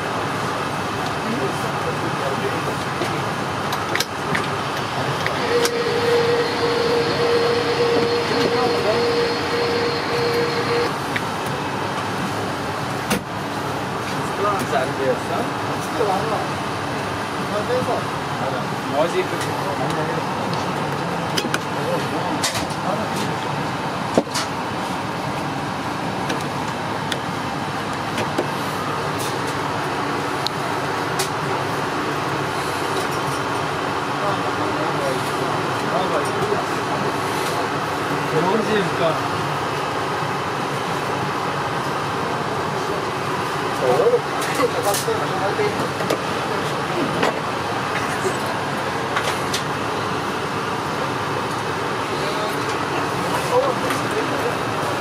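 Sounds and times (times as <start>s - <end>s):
airplane cabin noise: 0.0s - 15.3s, 18.0s - 55.0s.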